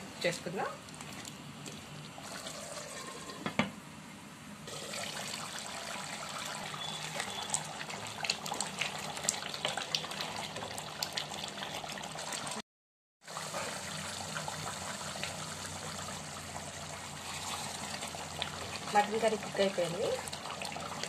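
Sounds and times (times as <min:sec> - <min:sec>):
curry bubbling in a pot: 0:04.7 - 0:12.6, 0:13.2 - 0:21.0.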